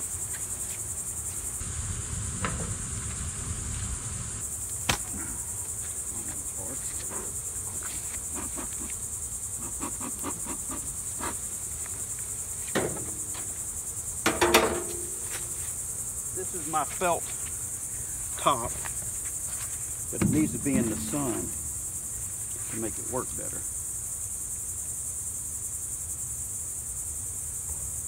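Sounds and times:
high-pitched insect chorus: 0.0 - 28.0
hive equipment clicks and knocks: 20.2 - 21.6.

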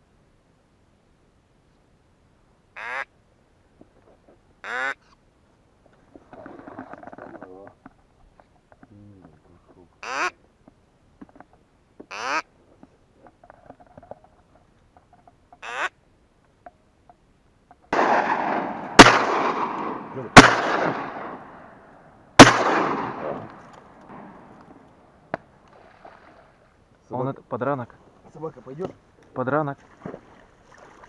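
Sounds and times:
duck quacks: 2.8 - 3.1, 4.6 - 5.2, 10.0 - 10.4, 12.1 - 12.5, 15.6 - 16.0
shotgun shots echoing: 17.9 - 24.8.

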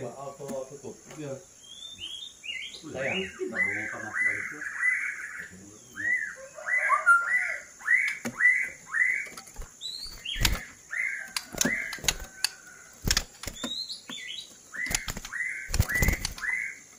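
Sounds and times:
bird call notes: 1.6 - 16.9
wing flutters: 8.2 - 13.8, 14.7 - 16.8
bird thumping in cage: 9.2 - 10.7, 11.3 - 13.8, 14.8 - 16.6.

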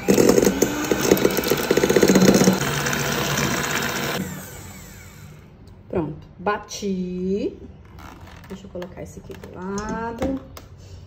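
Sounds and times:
electric mixer running: 0.0 - 5.6.

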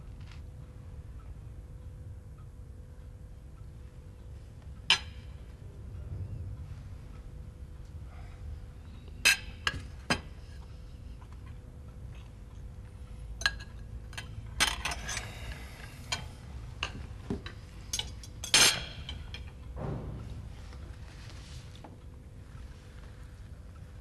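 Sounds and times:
low hum: 0.0 - 24.0.

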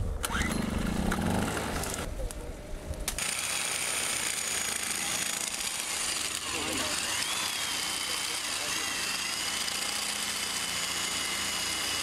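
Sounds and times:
generator pull-started and running: 0.1 - 2.2, 3.0 - 12.0
electric drill whining: 3.1 - 12.0.

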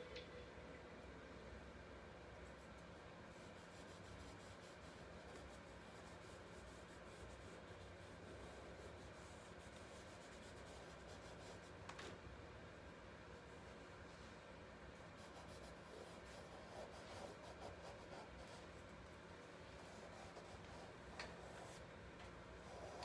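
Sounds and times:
charcoal scratching on paper: 2.5 - 11.8, 15.1 - 18.9, 19.7 - 21.9.

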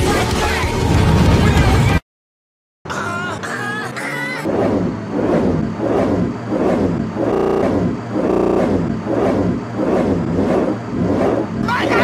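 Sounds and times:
looped stuttering sound clip: 4.5 - 12.0.

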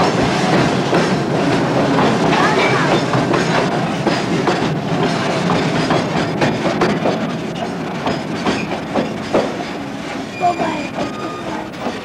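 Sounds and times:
freight train rumbling past: 0.0 - 12.0
wheels clacking over rail joints: 0.0 - 12.0
faint wheel squeals: 10.3 - 12.0.

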